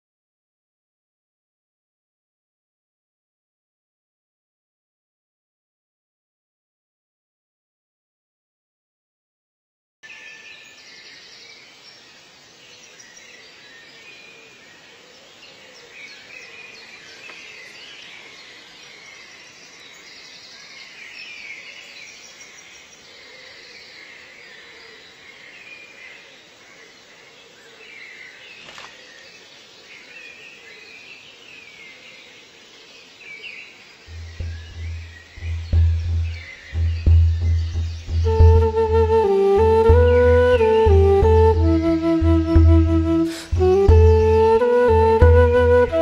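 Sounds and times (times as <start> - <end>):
background hiss: 10.1 - 46.0
small birds chirping: 27.8 - 40.0.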